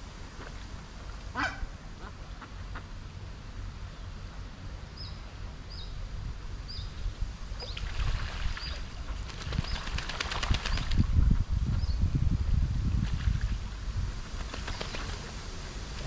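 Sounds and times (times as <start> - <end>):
wind on microphone: 6.9 - 16.0
bird wings flapping: 7.8 - 11.2, 14.2 - 15.4.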